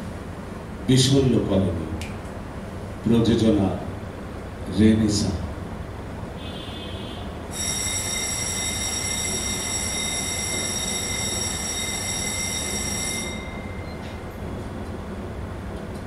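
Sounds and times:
high-pitched ringing tone: 7.5 - 15.1.

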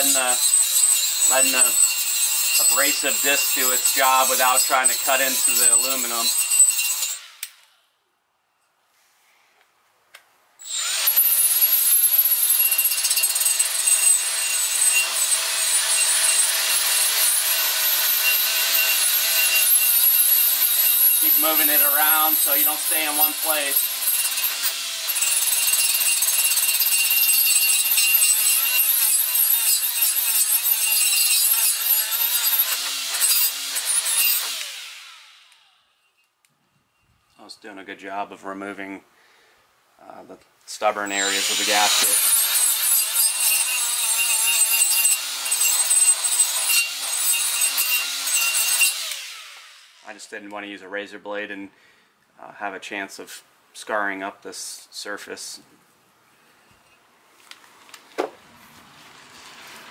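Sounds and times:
bristle disc scrubbing metal: 0.0 - 7.2, 17.6 - 34.4
rotary tool whining: 0.0 - 7.8, 10.6 - 36.3, 41.1 - 50.0.

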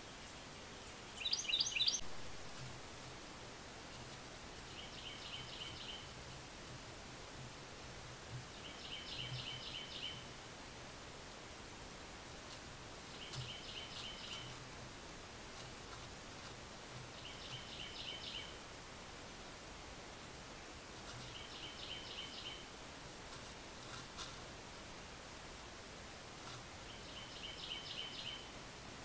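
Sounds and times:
faint woodland hiss: 0.0 - 29.0
bird calling: 1.2 - 2.1.

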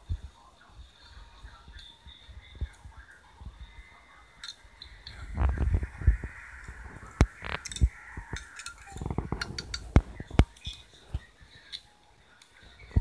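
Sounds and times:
cups knocking and clinking: 7.0 - 10.9.

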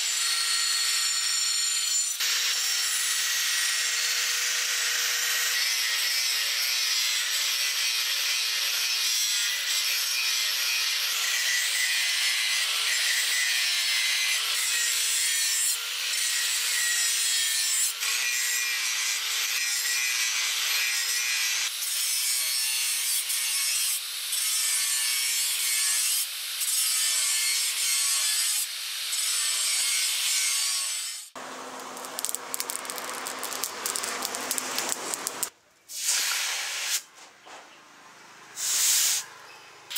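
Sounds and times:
angle grinder grinding metal: 0.0 - 35.5
forge fire hissing: 31.4 - 37.0.

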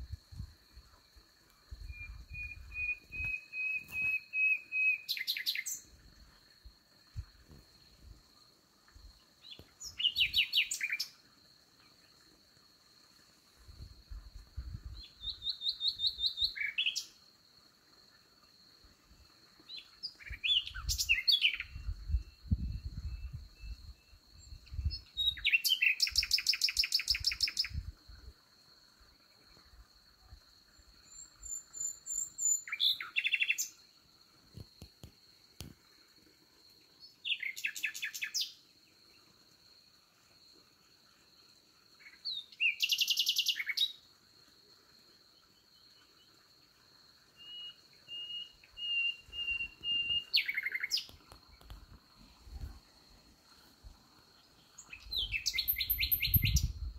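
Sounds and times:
high-pitched insect trill: 0.0 - 56.9
nightingale singing: 1.8 - 6.0, 9.4 - 11.2, 14.6 - 17.2, 19.7 - 27.9, 30.8 - 33.8, 37.0 - 38.6, 42.0 - 44.0, 47.4 - 51.8, 54.4 - 56.9.

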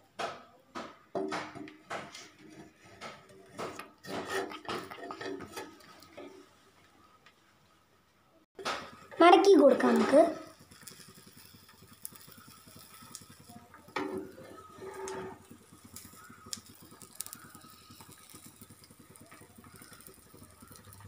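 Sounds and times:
metal spatula scraping frying pan: 2.0 - 6.5, 8.6 - 13.3, 13.9 - 16.2.

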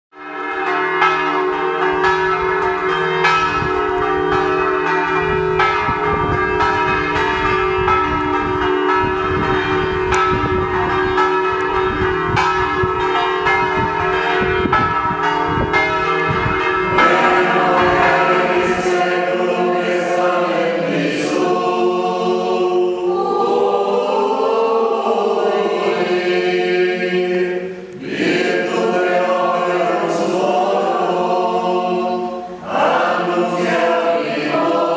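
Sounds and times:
church bells ringing: 0.2 - 34.9
voices singing a chant: 16.9 - 34.9.

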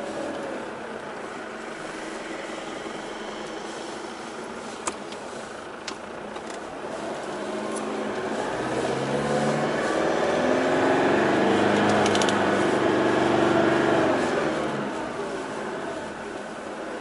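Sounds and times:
vehicle engine and road noise: 0.0 - 17.0
sharp clicks: 11.8 - 12.4.

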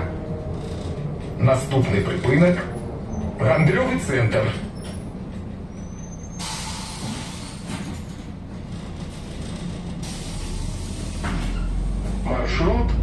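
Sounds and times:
diesel engine humming: 0.0 - 13.0
bus air system hissing: 6.3 - 8.0, 10.0 - 11.9.

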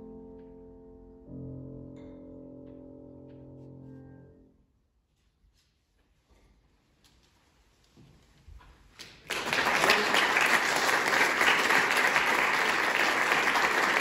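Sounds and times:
audience applause: 9.1 - 14.0.

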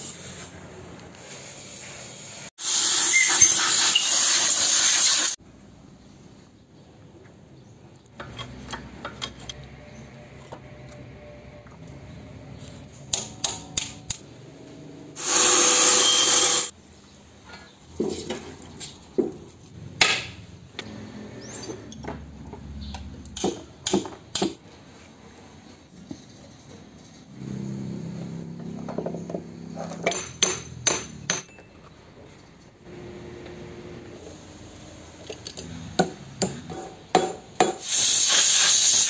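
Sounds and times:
loud hiss: 1.2 - 5.4, 15.2 - 16.7, 37.8 - 39.0.

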